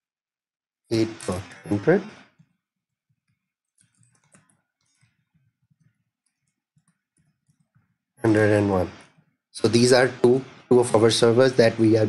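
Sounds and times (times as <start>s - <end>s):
keyboard typing: 2.4s - 9.3s.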